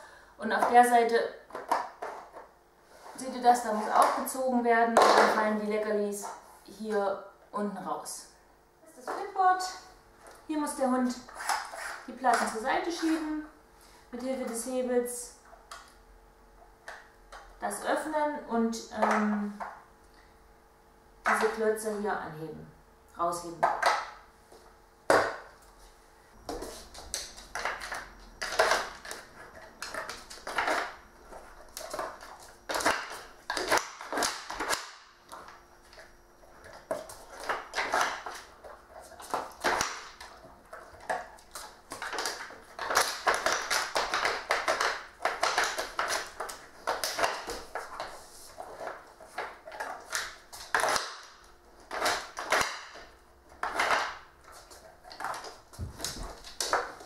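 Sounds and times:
wooden blocks knocking and scraping: 1.5s - 2.5s, 26.5s - 36.0s, 36.6s - 51.3s, 51.9s - 57.0s.

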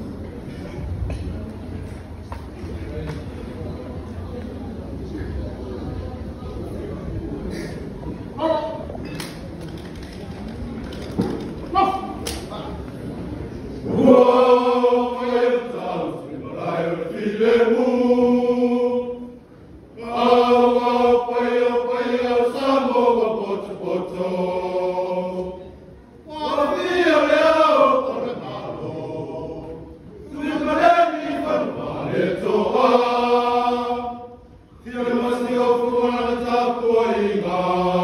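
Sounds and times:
men's choir chanting: 13.8s - 19.4s, 20.0s - 25.6s, 26.3s - 38.0s.

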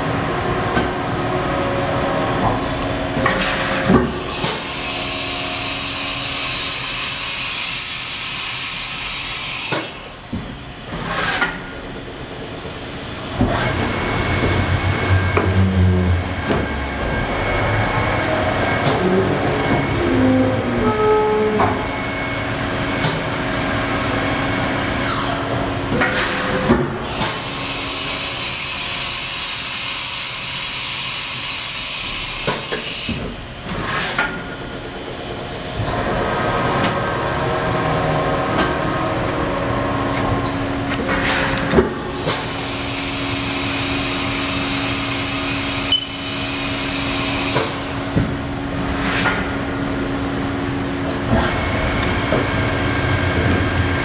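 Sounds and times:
machine hum and whine: 0.0s - 54.0s.

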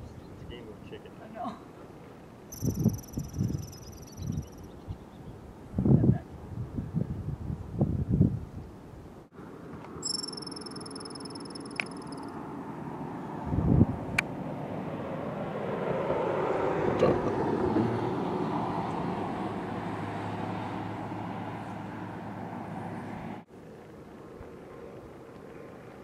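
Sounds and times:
outdoor background noise: 0.0s - 26.0s
pickup truck passing: 14.3s - 23.4s.

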